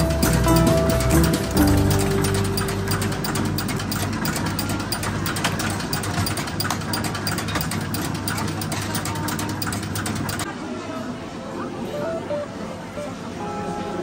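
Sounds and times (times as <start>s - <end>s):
gears and rollers clattering: 0.0s - 10.5s.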